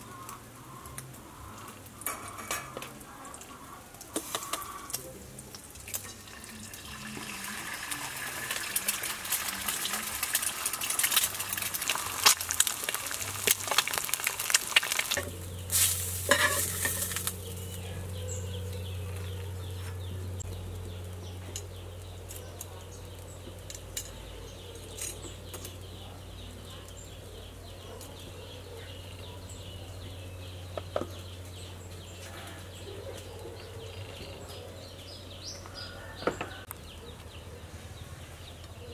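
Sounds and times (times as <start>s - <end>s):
eggs sizzling in hot oil: 0.0s - 17.7s.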